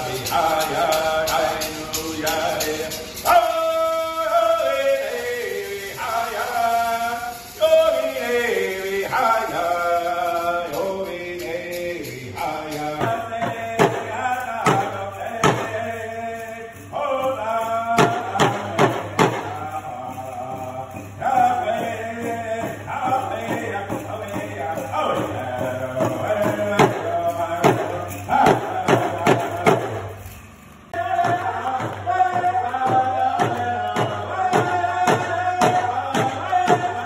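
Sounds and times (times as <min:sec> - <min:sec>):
male voices chanting: 0:00.0 - 0:30.1, 0:30.9 - 0:37.0
steady drumbeat: 0:12.3 - 0:16.4, 0:17.2 - 0:30.3, 0:31.0 - 0:37.0.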